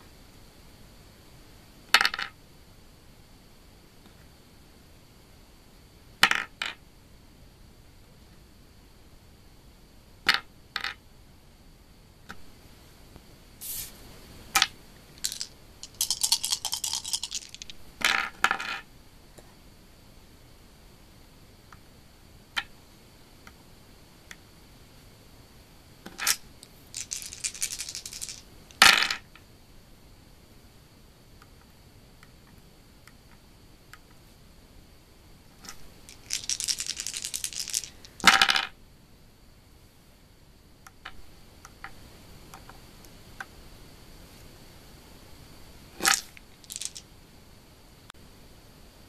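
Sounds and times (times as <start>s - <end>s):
dice clattering on wooden table: 2.0s - 2.4s, 6.2s - 6.8s, 10.3s - 11.0s, 14.6s - 18.8s, 26.1s - 26.4s, 27.0s - 29.3s, 35.6s - 38.7s, 46.0s - 47.0s
dice rattling in hand: 14.6s - 18.8s, 26.2s - 29.2s, 36.0s - 38.7s, 46.0s - 47.0s.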